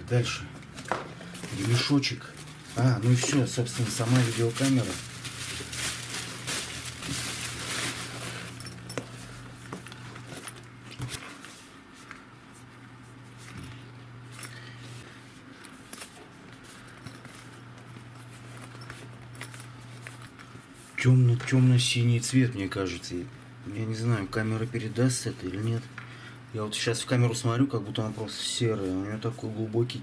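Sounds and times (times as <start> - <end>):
bubble wrap crinkling: 1.2 - 11.0.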